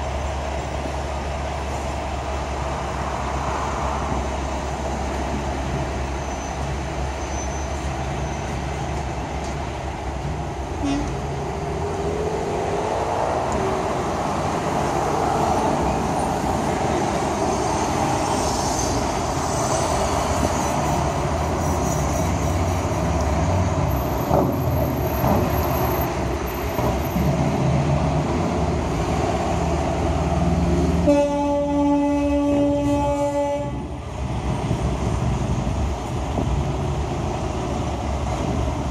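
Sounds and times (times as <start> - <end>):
heavy street traffic: 0.0 - 38.9
long horn blast: 10.8 - 11.2, 30.9 - 34.0.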